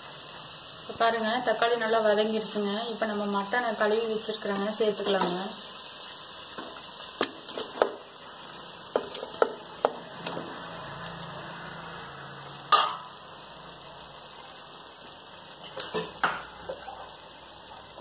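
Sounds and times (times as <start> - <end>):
wooden spatula knocking metal pot: 8.9 - 10.0.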